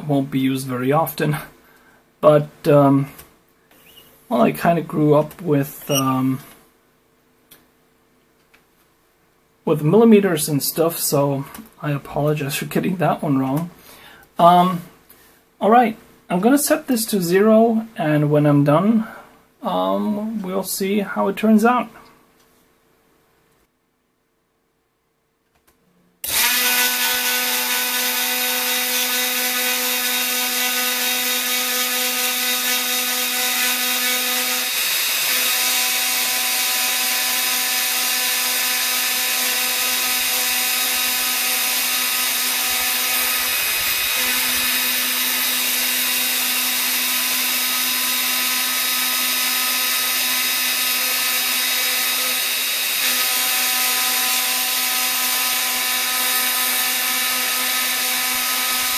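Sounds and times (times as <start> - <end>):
router spindle motor whining: 26.2 - 58.9.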